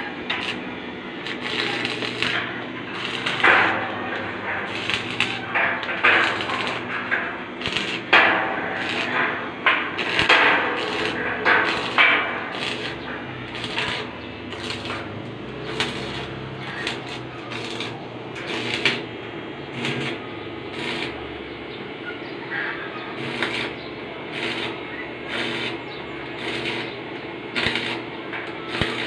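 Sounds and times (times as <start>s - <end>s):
arc welding crackling and sizzling: 0.0s - 29.0s.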